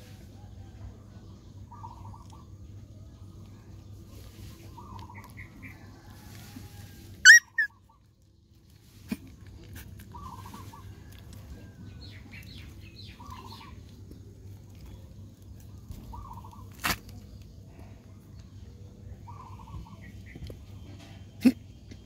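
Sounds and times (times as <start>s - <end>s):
low steady hum: 0.0s - 22.0s
faint short animal calls: 7.2s - 7.7s
high-pitched animal squeals: 7.2s - 7.7s.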